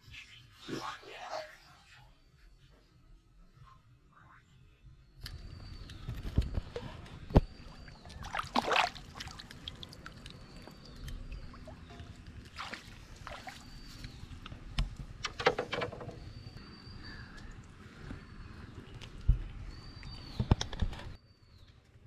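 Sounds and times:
water splashing and sloshing: 0:06.6 - 0:14.5.

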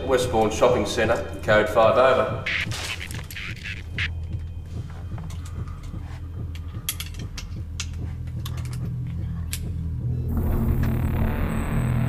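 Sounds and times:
low steady drone: 0:08.4 - 0:12.0.

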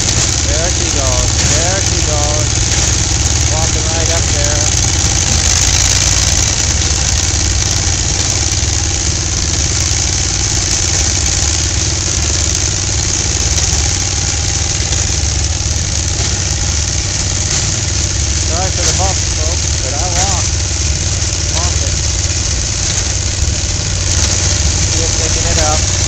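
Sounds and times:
hay baler engine running: 0:00.0 - 0:26.0
tractor engine: 0:00.0 - 0:26.0.

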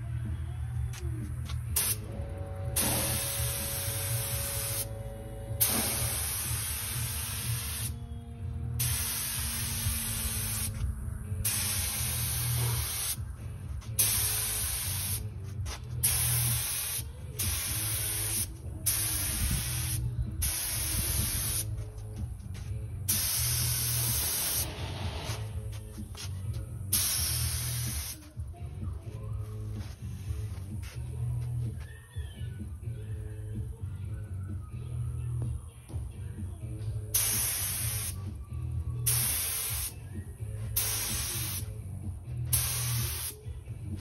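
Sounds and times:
steady low hum: 0:00.0 - 0:44.0
spray gun hissing: 0:02.8 - 0:04.9, 0:05.6 - 0:07.9, 0:08.8 - 0:10.8, 0:11.4 - 0:13.2, 0:14.0 - 0:15.2, 0:23.1 - 0:24.8, 0:26.9 - 0:28.2, 0:39.1 - 0:39.9, 0:40.8 - 0:41.6, 0:42.5 - 0:43.4.

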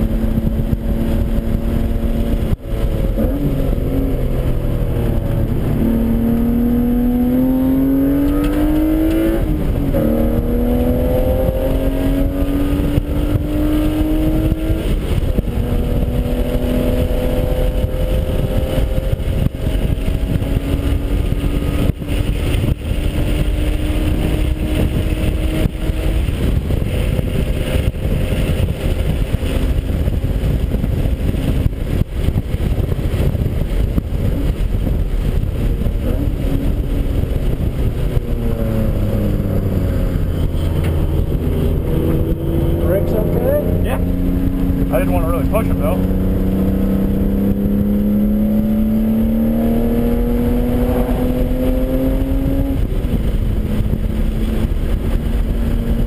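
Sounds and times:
race car engine accelerating: 0:00.0 - 0:56.0
road and wind noise: 0:00.0 - 0:56.0.

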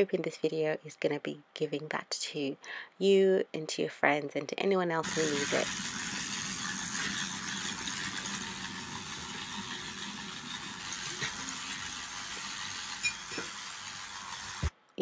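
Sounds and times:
bristles rasping on tile: 0:05.0 - 0:14.7
power brush motor buzz: 0:05.0 - 0:14.7.

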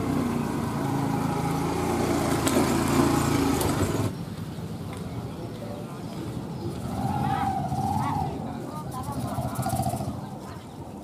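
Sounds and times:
small vehicle engine running: 0:00.0 - 0:04.2.

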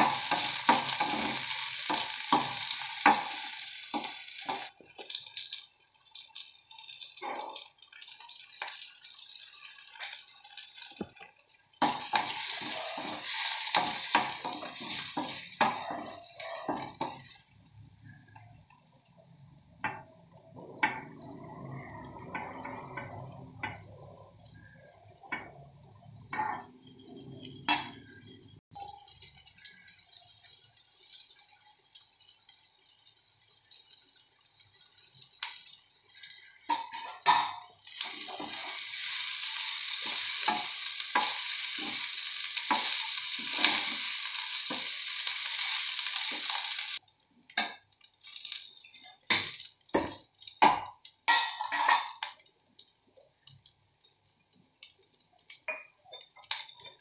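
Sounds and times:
loud sizzling hiss: 0:00.0 - 0:04.7, 0:11.8 - 0:17.8, 0:37.9 - 0:47.0
spoon scraping metal pan: 0:11.8 - 0:17.6, 0:51.3 - 0:52.2.

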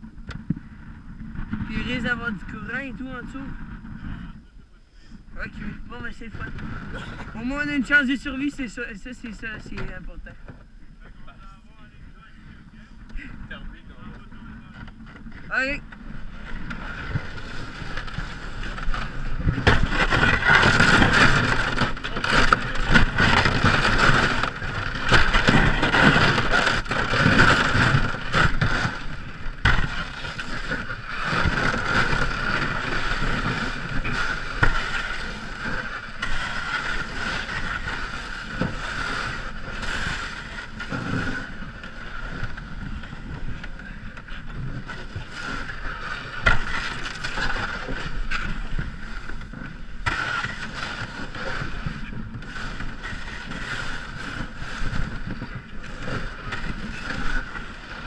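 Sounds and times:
canoe hull scraping over ice: 0:00.5 - 0:04.4, 0:05.4 - 0:11.6, 0:12.3 - 0:58.0
ice crunching: 0:15.5 - 0:58.0.

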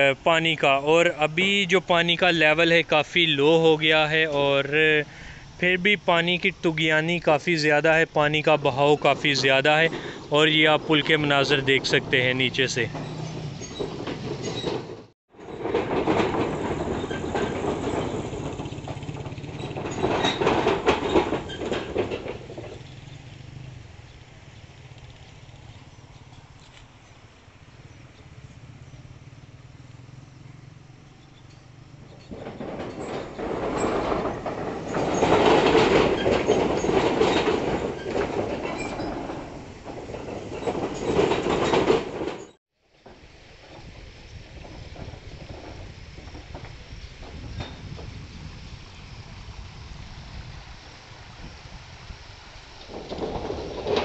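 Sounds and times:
stream rushing: 0:00.0 - 0:14.4, 0:43.1 - 0:54.0
traffic rumbling over steel bridge: 0:00.0 - 0:54.0.

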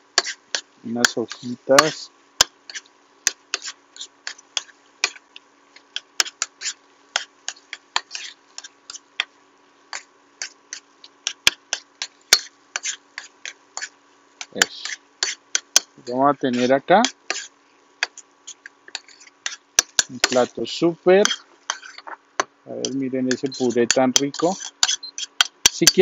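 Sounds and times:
faint steady hum: 0:00.0 - 0:26.0
utensil scraping a pan: 0:00.2 - 0:05.2, 0:05.8 - 0:09.3, 0:09.9 - 0:22.2, 0:22.8 - 0:26.0.

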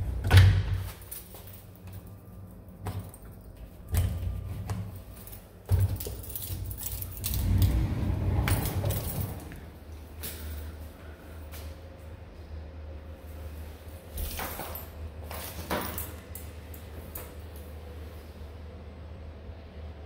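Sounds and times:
door hardware clicks and rattles: 0:02.8 - 0:09.7
sliding door rumbling: 0:07.0 - 0:09.9.

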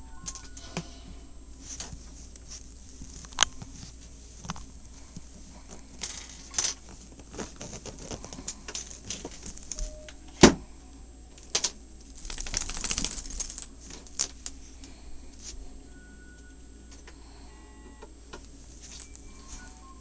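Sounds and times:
dog claws scratching fabric: 0:06.8 - 0:08.5.

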